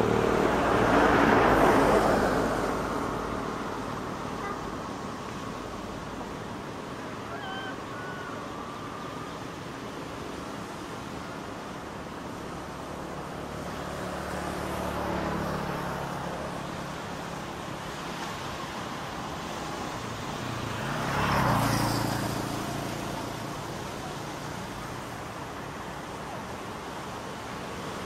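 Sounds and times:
vehicle engine passing by: 0:00.0 - 0:04.0, 0:20.4 - 0:25.0
faint engine hum: 0:00.0 - 0:18.7
small waves breaking on beach: 0:00.0 - 0:28.0.

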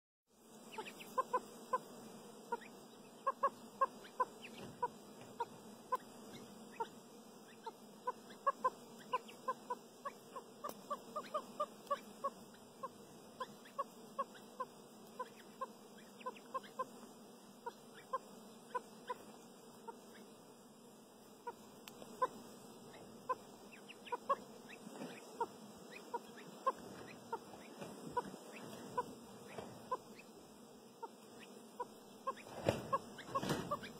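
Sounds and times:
partridge calling: 0:00.7 - 0:01.8, 0:02.5 - 0:16.9, 0:22.9 - 0:30.3, 0:32.2 - 0:33.9.

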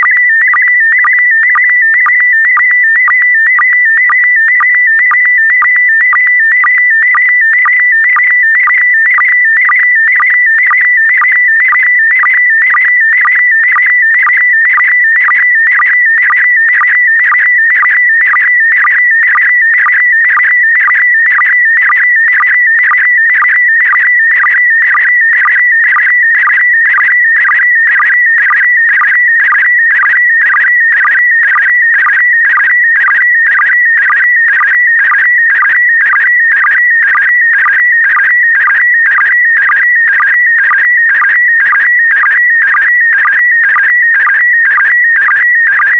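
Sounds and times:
short low sync beeps: 0:00.0 - 0:45.9.

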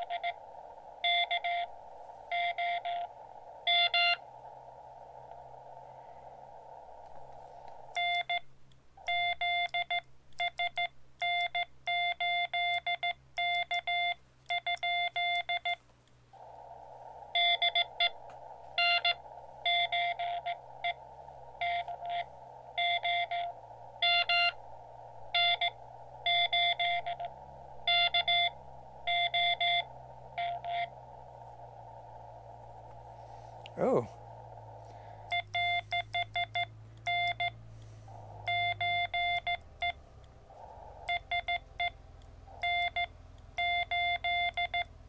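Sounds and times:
radio band hiss: 0:00.0 - 0:08.0, 0:16.4 - 0:43.3
morse code tone: 0:18.8 - 0:21.0, 0:21.6 - 0:24.7, 0:25.3 - 0:30.9, 0:35.3 - 0:37.6, 0:38.4 - 0:40.0, 0:41.0 - 0:44.9.

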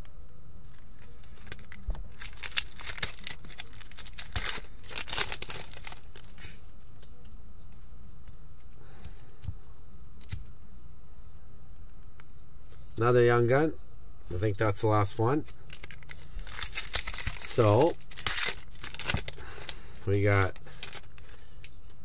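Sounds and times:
wrapper tearing and crinkling: 0:01.0 - 0:06.6, 0:15.4 - 0:21.2.

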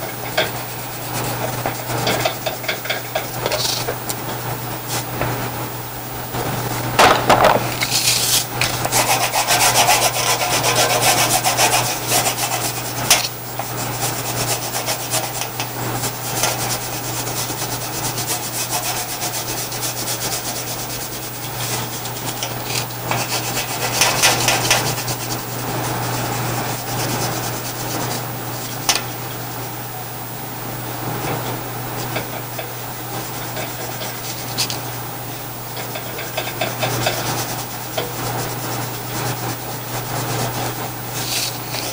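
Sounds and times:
steady low hum: 0:00.0 - 0:41.9
crayon scribbling on paper: 0:08.9 - 0:12.9.

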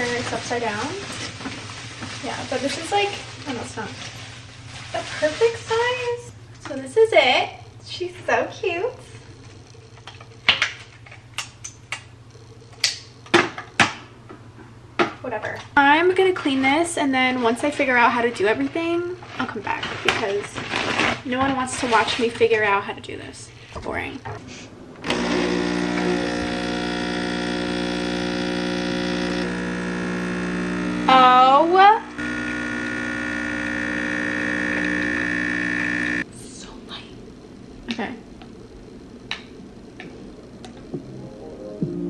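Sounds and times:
steady low hum: 0:00.0 - 0:16.1, 0:22.7 - 0:42.0
espresso machine pump buzzing: 0:25.0 - 0:36.2.

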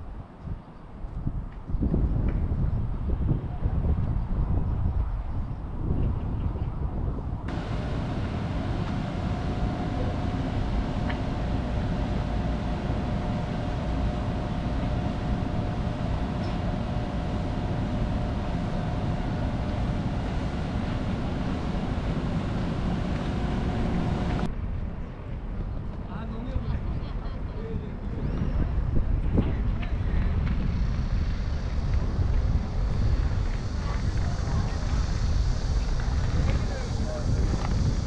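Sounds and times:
faint steady hum: 0:07.5 - 0:24.5
ambient rumble and hiss: 0:07.5 - 0:24.6, 0:29.5 - 0:38.0.

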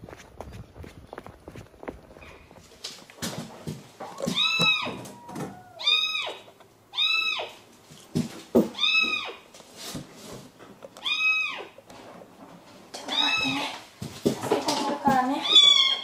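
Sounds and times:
kitten meowing: 0:04.3 - 0:07.5.

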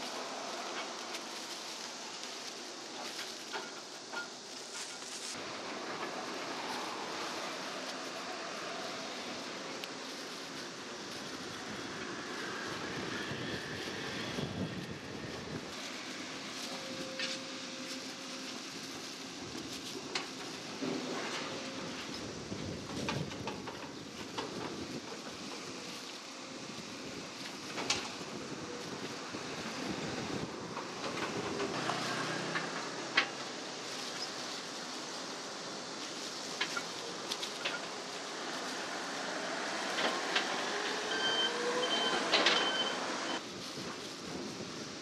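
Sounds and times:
plastic gloves rustling: 0:00.0 - 0:05.6, 0:06.2 - 0:30.7
road traffic rumble: 0:00.0 - 0:45.0.

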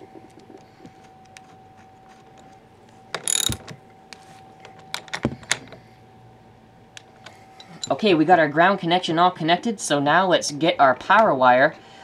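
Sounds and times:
small metal clicks: 0:03.2 - 0:03.6
socket wrench ratcheting: 0:03.2 - 0:03.6.

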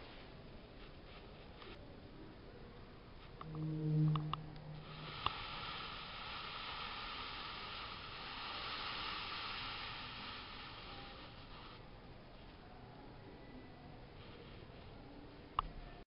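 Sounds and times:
sizzling flame hiss: 0:03.2 - 0:12.5.

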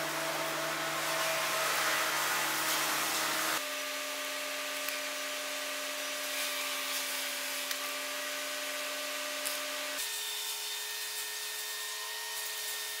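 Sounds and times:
machine hum: 0:00.0 - 0:06.7.

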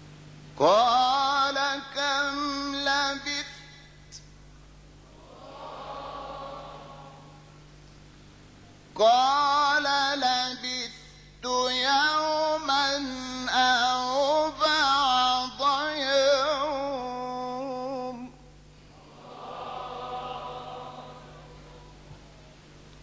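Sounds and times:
man reciting melodically: 0:00.6 - 0:03.9, 0:09.0 - 0:18.4.

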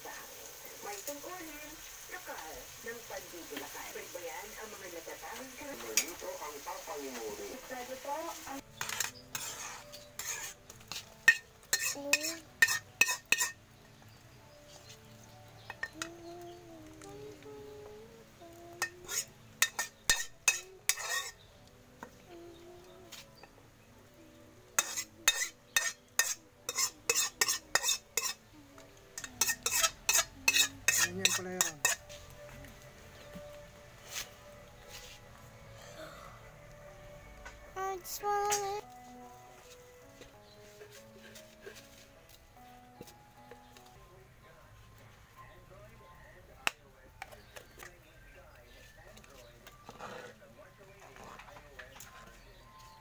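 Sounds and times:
ladle scraping a metal pan: 0:08.6 - 0:13.6, 0:18.8 - 0:21.4, 0:24.8 - 0:28.4, 0:29.2 - 0:32.2, 0:49.8 - 0:50.4
ladle clinking on pan rim: 0:08.8 - 0:13.6, 0:18.8 - 0:21.4, 0:24.8 - 0:28.4, 0:29.2 - 0:32.0.

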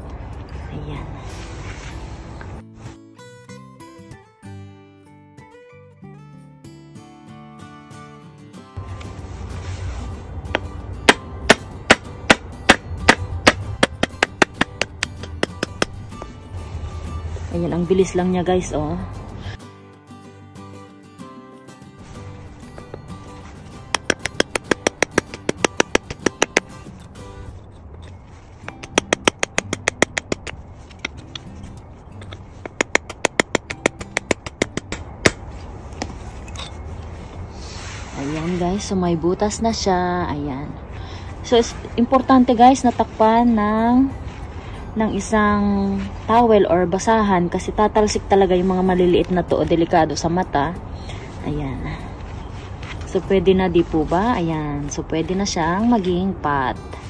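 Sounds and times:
hammer tapping metal punch: 0:10.6 - 0:16.0
hammer tapping steel punch: 0:10.6 - 0:16.0, 0:23.9 - 0:26.7, 0:28.7 - 0:30.5, 0:32.6 - 0:35.4.

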